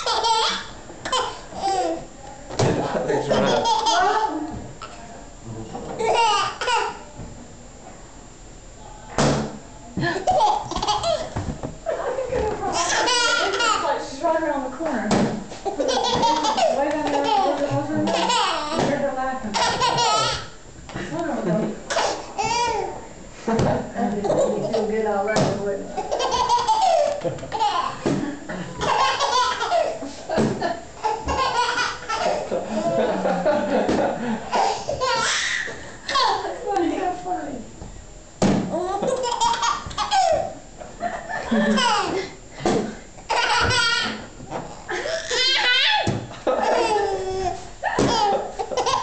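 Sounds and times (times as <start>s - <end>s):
baby laughing: 0.0s - 2.0s, 3.2s - 4.4s, 6.0s - 7.0s, 10.2s - 11.4s, 12.7s - 14.0s, 15.6s - 18.9s, 19.5s - 20.6s, 26.0s - 28.0s, 28.8s - 30.0s, 31.0s - 32.6s, 34.5s - 36.5s, 38.8s - 40.6s, 41.4s - 42.2s, 43.3s - 44.2s, 44.8s - 49.0s
balloon thump: 15.1s - 15.4s, 38.4s - 38.8s
people laughing: 32.2s - 34.6s, 40.9s - 43.0s, 46.3s - 47.2s, 47.8s - 49.0s.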